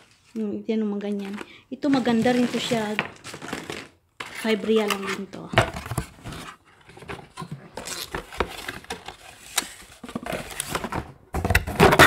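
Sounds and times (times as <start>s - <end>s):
cloth and packaging rustling: 0.0s - 11.2s.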